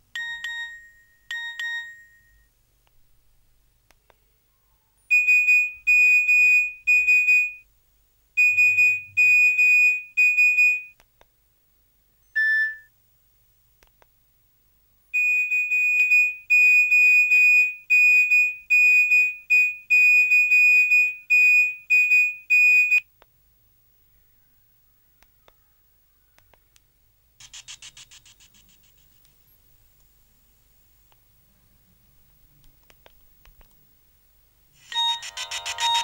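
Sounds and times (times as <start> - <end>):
high electronic beeps: 8.4 - 9.4, 34.8 - 36.0
short lower beep: 8.4 - 9.6.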